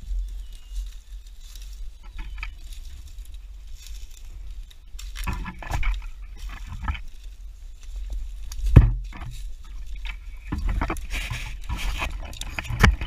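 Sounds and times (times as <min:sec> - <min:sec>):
footsteps crunching dry leaves: 0:00.0 - 0:13.0
low microphone rumble: 0:00.0 - 0:13.0
twigs scraping clothing: 0:00.0 - 0:13.0.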